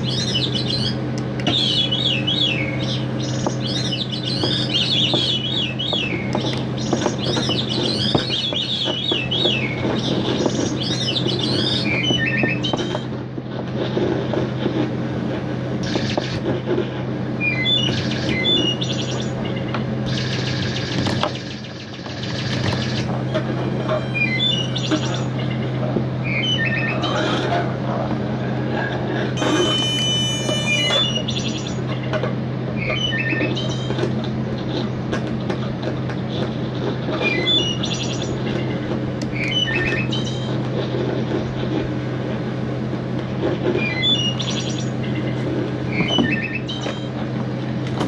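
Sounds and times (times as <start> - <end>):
low electronic drone: 17.4 - 31.9
electronic chirping glides: 20.1 - 25.4, 29.4 - 31.8
buzzy stuttering high noise: 29.4 - 31.3.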